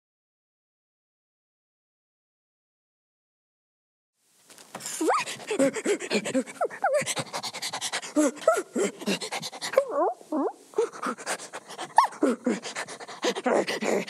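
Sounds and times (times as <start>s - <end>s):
person imitating a dog: 5.0s - 7.4s, 8.1s - 14.0s.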